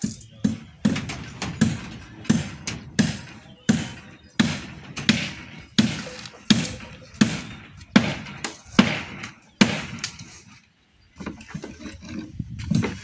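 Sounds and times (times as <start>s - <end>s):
hammer knocks: 0.4s - 10.0s.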